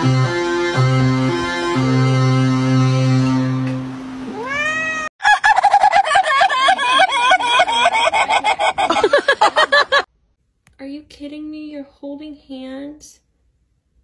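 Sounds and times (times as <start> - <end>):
synthesizer notes: 0.0 - 4.3
cat meowing: 4.3 - 5.1
chicken clucking rapidly: 5.2 - 9.2.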